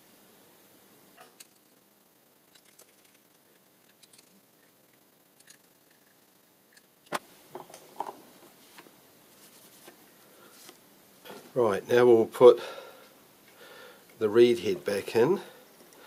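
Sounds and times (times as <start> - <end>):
cloth rag rustling: 8.4 - 10.8.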